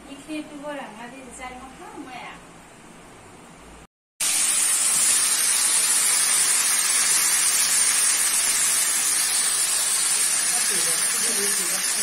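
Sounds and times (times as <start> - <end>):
chicken sizzling in hot oil: 4.2 - 12.0.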